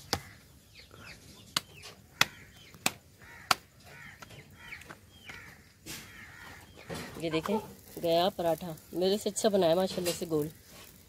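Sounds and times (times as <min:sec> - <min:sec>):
chickens clucking: 0:00.0 - 0:08.2.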